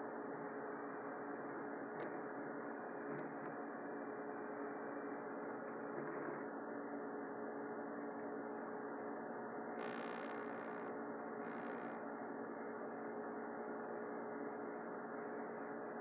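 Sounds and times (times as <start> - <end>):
steady hum with hiss: 9.6 - 13.0
brief higher buzz: 9.8 - 10.9, 11.5 - 12.0.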